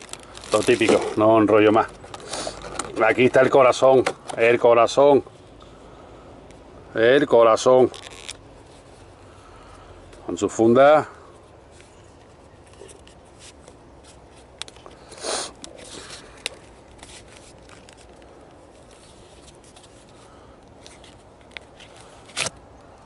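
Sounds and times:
case rustling: 0.0 - 4.5.

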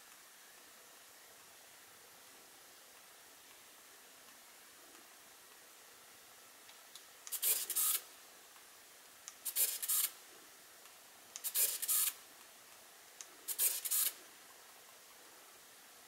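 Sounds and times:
camera motor whirring: 7.3 - 8.0, 9.5 - 10.2, 11.4 - 12.2, 13.5 - 14.2.

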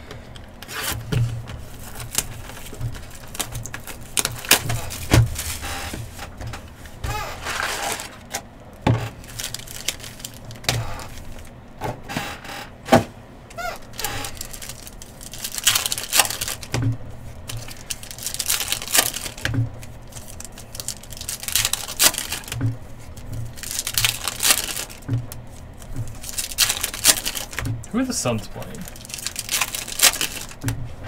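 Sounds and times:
pack wrappers crinkling: 0.4 - 11.6, 13.5 - 30.7
card stock clicks and snaps: 14.0 - 16.8, 17.5 - 27.7, 28.6 - 30.7.

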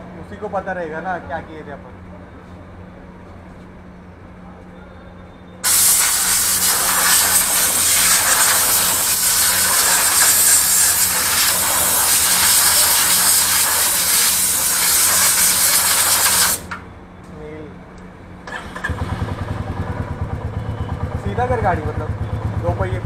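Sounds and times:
pressurised air jet hissing: 5.6 - 16.8.

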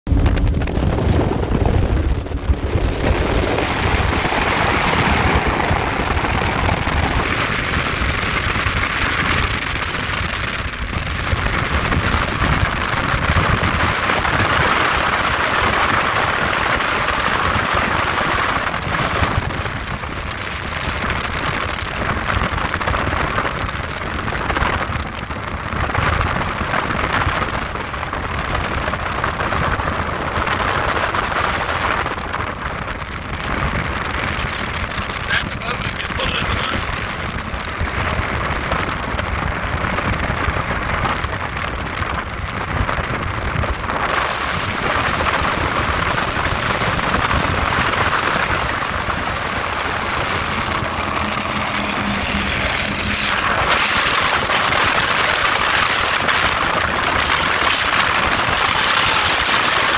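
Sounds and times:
low engine rumble: 0.0 - 59.9
wind rushing over microphone: 0.0 - 59.9
hissing water spray: 44.0 - 59.9.

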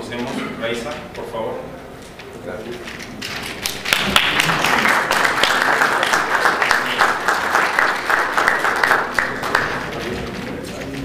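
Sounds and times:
audience applauding: 3.6 - 10.2.

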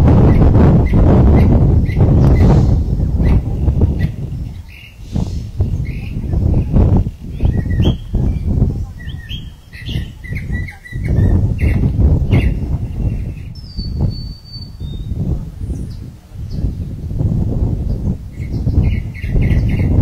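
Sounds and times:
low rumble: 0.0 - 19.0
small birds chirping: 0.2 - 20.0.

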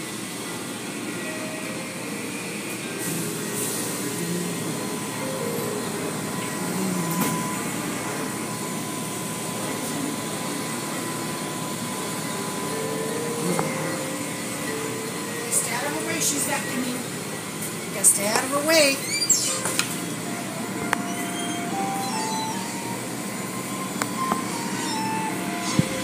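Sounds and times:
water spray and wash machinery: 0.0 - 18.6
thin steady whine: 0.0 - 26.0.

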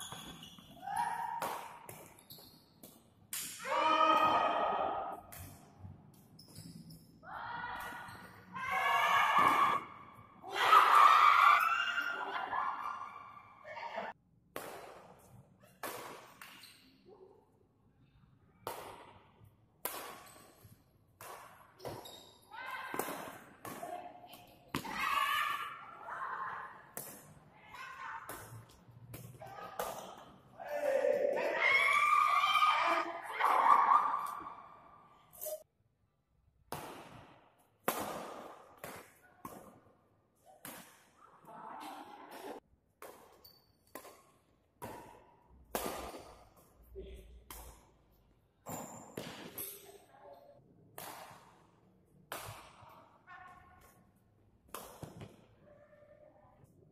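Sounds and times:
rackets hitting shuttlecock in hall: 0.0 - 11.0, 14.5 - 35.7, 36.6 - 56.9
racket hitting shuttlecock: 0.1 - 2.2, 14.5 - 16.7, 18.6 - 22.0, 22.8 - 25.6, 36.7 - 39.8, 40.6 - 41.2, 42.3 - 46.7, 51.0 - 53.0, 54.7 - 55.4.

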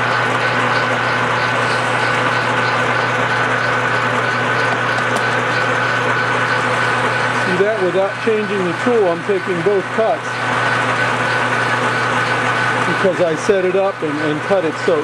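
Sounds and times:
metal lathe whining: 0.0 - 15.0.

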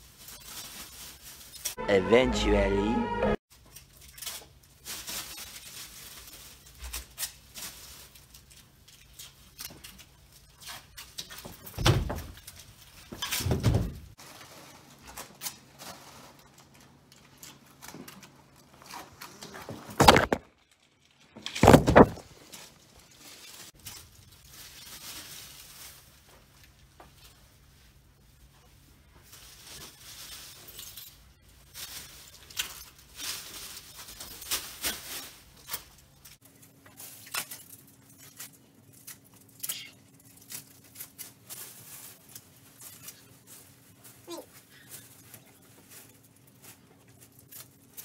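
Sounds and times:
rustling and peeling tape: 0.0 - 1.8, 3.5 - 48.0.

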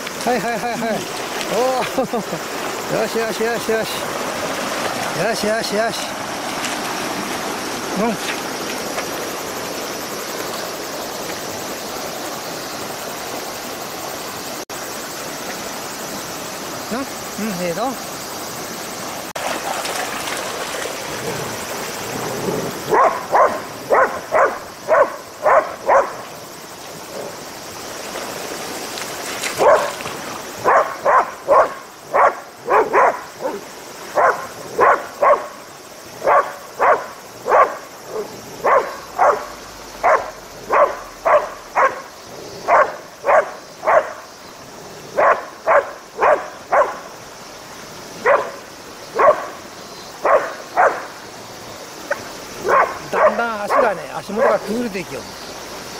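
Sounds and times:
dog splashing through water: 0.0 - 9.8, 19.3 - 26.1, 28.0 - 33.2
dog barking sharply: 22.9 - 26.2, 29.6 - 30.0, 30.6 - 33.6, 38.6 - 42.0, 42.7 - 44.2, 45.2 - 47.0, 48.2 - 48.6, 49.2 - 49.5, 50.3 - 51.0, 52.6 - 54.6.

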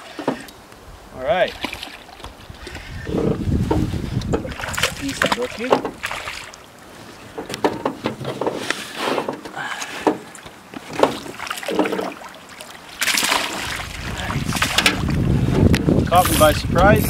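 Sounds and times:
water splashing and sloshing: 0.0 - 17.0
wind rumbling on microphone: 0.7 - 7.6, 13.5 - 17.0
fish thrashing at water surface: 1.5 - 6.7, 10.8 - 15.6.

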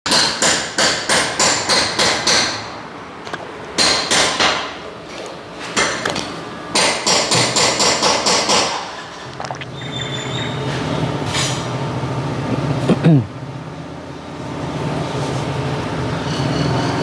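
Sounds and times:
hammer striking metal: 0.1 - 2.7, 3.8 - 4.8, 6.7 - 8.9.

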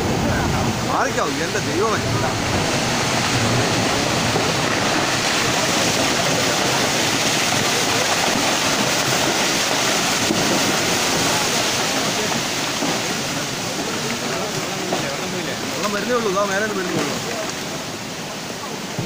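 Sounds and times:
heavy rain: 0.0 - 19.0
landslide rushing: 0.0 - 19.0.

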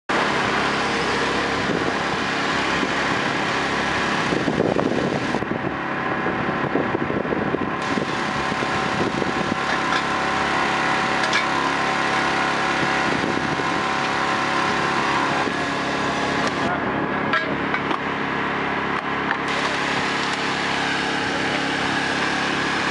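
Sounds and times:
small engine running steadily: 0.1 - 22.9.

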